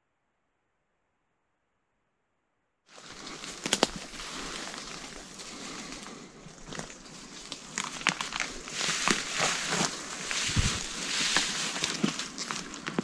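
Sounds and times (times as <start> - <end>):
footsteps through undergrowth: 2.9 - 13.0
twigs snapping: 3.0 - 13.0.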